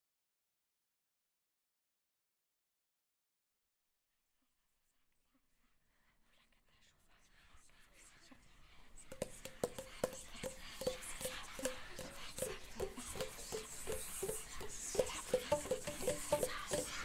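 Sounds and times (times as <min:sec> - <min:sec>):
rhythmic hollow tapping: 0:08.9 - 0:17.0.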